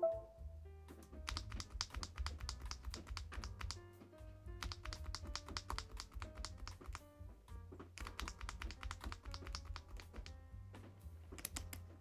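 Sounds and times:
background music: 0:00.0 - 0:12.0
mechanical keyboard keys clacking: 0:01.2 - 0:03.8, 0:04.6 - 0:07.0, 0:08.0 - 0:10.4, 0:11.3 - 0:11.9.

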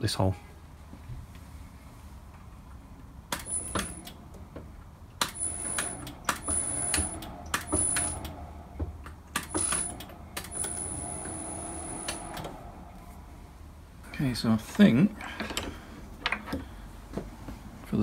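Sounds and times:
sharp clicks and metallic knocks: 0:03.3 - 0:11.4
drill press motor whine: 0:05.3 - 0:08.6, 0:09.5 - 0:13.0.

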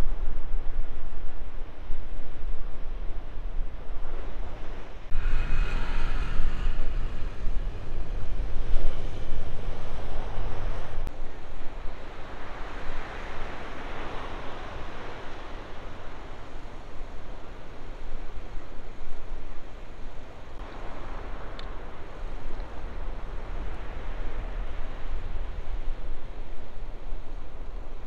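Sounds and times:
wind rumbling on microphone: 0:00.0 - 0:28.0
ocean surf breaking: 0:04.1 - 0:18.6.

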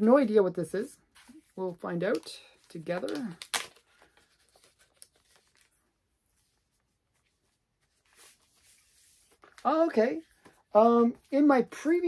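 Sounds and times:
packaging crinkling: 0:02.8 - 0:05.8.

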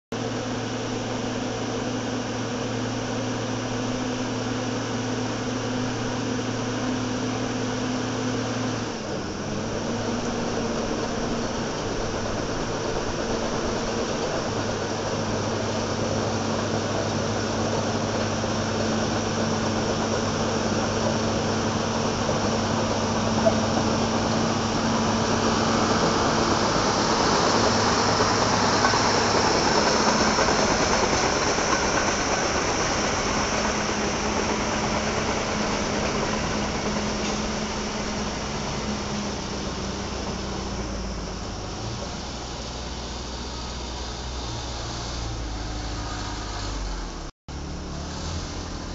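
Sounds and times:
dozer diesel engine under load: 0:00.0 - 0:48.9
hiss: 0:09.8 - 0:47.0, 0:47.9 - 0:48.9.

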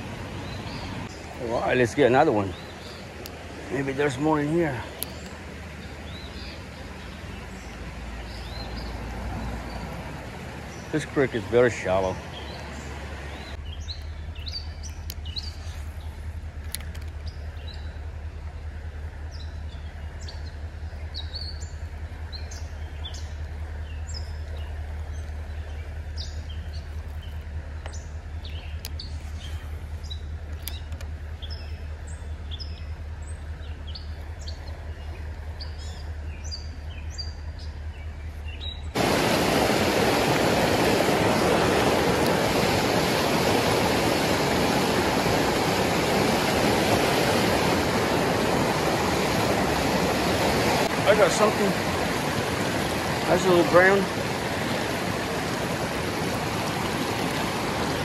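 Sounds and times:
water rushing over rocky rapid: 0:00.0 - 0:13.6, 0:38.9 - 0:58.0
faint creek water: 0:00.0 - 0:58.0
small songbirds chirping: 0:00.0 - 0:58.0
low steady hum: 0:13.3 - 0:58.0.

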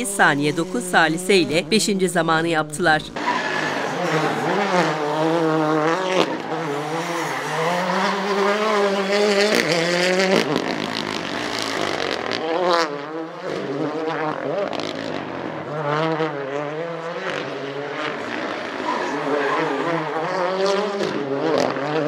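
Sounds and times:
car engine revving hard: 0:03.2 - 0:22.0.

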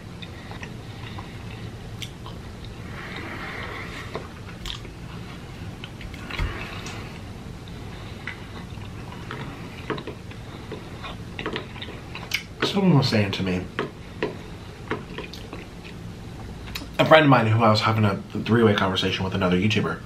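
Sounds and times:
close chewing mouth sounds: 0:00.1 - 0:03.3, 0:04.1 - 0:12.5, 0:14.2 - 0:16.0.

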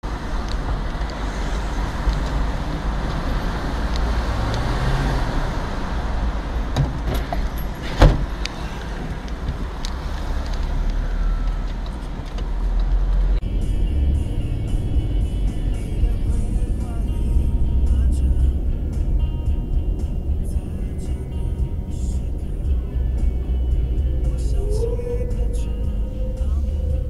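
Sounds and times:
car engine and road rumble: 0:00.0 - 0:27.0
sharp thump: 0:06.8 - 0:08.3.

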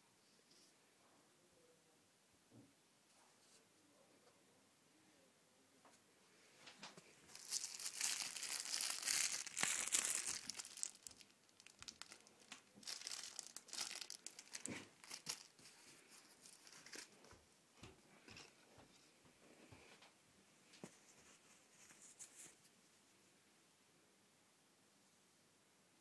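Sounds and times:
plastic wrapping crinkling: 0:07.2 - 0:17.2.

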